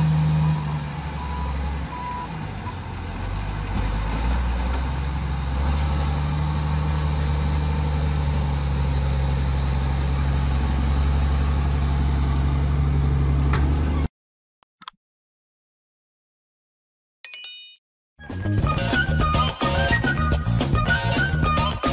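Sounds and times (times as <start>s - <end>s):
diesel engine droning: 0.0s - 14.1s.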